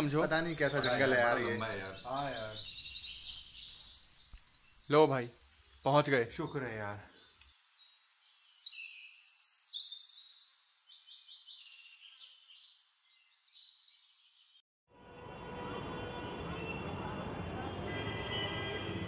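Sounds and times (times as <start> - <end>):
faint outdoor ambience: 0.0 - 11.2
birds chirping: 0.0 - 14.6.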